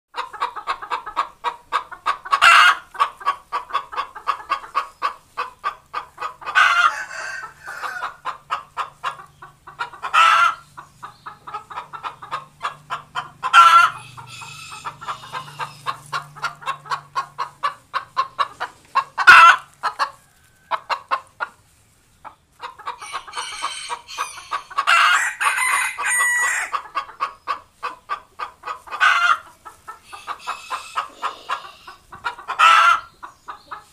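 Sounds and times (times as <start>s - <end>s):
hen clucking and squawking: 0.2s - 33.9s.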